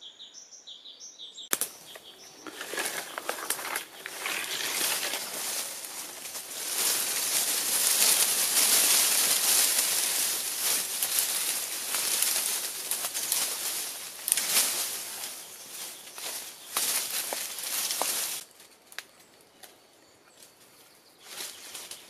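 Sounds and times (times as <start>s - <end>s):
leaves and branches rustling: 1.5s - 22.0s
twigs crackling: 1.5s - 22.0s.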